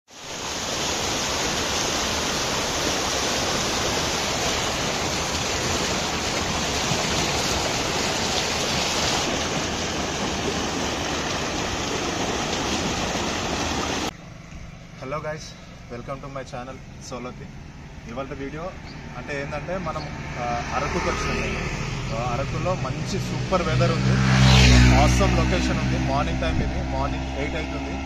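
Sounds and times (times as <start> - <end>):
waterfall roaring: 0.1 - 14.1.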